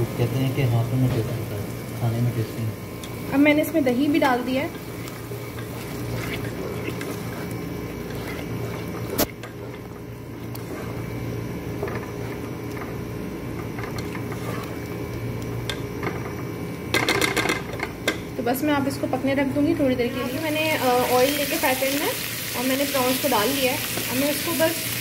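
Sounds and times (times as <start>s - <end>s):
steady low hum: 0.0s - 25.0s
spatula stirring thick sauce: 4.8s - 11.2s.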